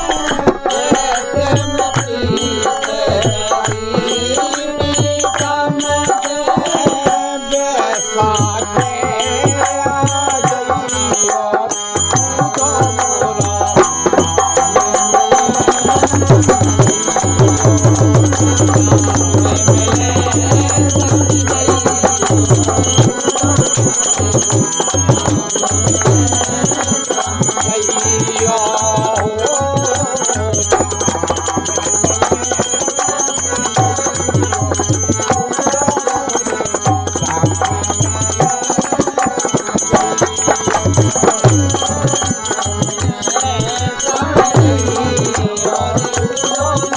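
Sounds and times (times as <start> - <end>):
harmonium: 0.0 - 46.9
man singing: 0.0 - 46.9
hand claps: 4.4 - 6.3
hand drum: 8.4 - 46.9.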